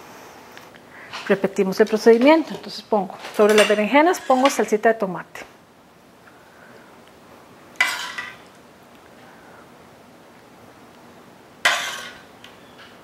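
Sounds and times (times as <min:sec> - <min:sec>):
metal spoon scraping cookware: 0:03.4 - 0:04.7, 0:07.8 - 0:08.4, 0:11.7 - 0:12.2.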